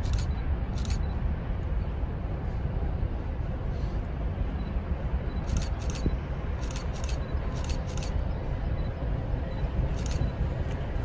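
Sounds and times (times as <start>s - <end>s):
train wheels clicking over rail joint: 0.0s - 1.0s, 5.5s - 8.2s, 9.9s - 10.2s
train rumble: 0.0s - 11.0s.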